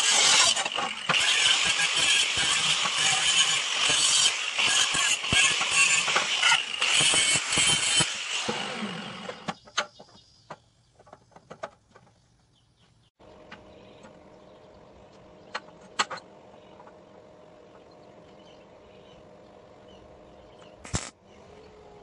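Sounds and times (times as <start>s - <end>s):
angle grinder grinding steel: 0.0s - 9.6s, 20.6s - 21.2s
metallic clicks and knocks: 9.5s - 12.2s.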